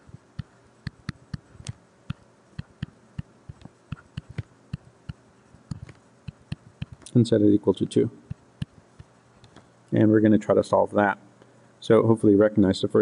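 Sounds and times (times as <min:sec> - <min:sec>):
stylus tapping on tablet screen: 0:00.4 - 0:07.1.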